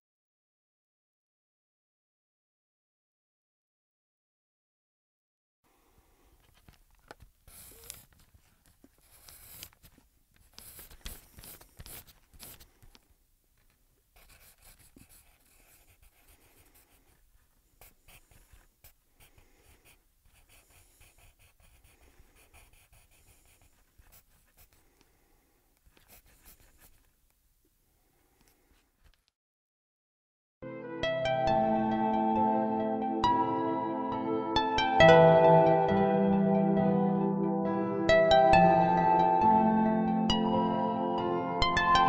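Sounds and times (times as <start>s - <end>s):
pen scratching on paper: 7.5s - 13.0s, 14.2s - 24.9s, 25.8s - 27.1s.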